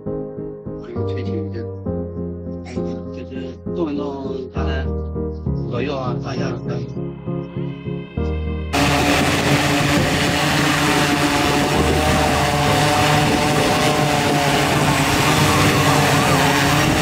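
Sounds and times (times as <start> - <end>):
drone propellers whining: 8.7 - 17.0.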